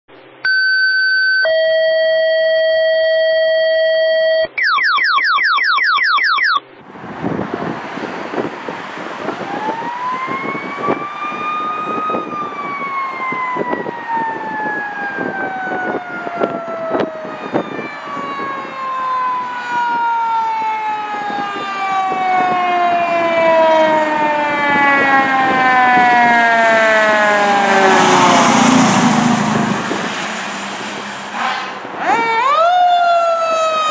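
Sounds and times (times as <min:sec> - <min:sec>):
truck engine and tyres passing: 0:06.7 - 0:32.7
fire engine mechanical siren: 0:08.3 - 0:33.9.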